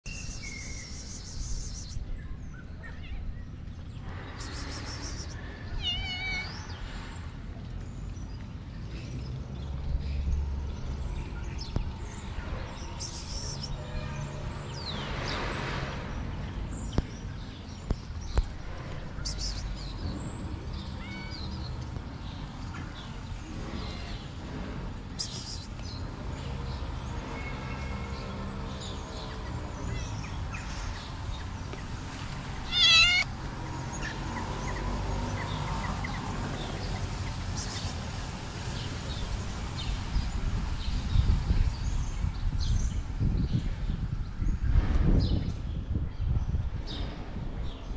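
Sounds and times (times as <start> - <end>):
high bird chirps: 0.0 - 2.0, 4.4 - 5.4
cat meowing: 5.8 - 6.6, 32.6 - 33.3.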